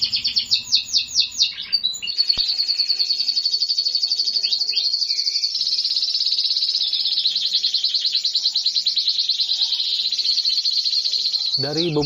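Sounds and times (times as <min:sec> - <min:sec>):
canary singing fast trill: 0:00.0 - 0:12.0.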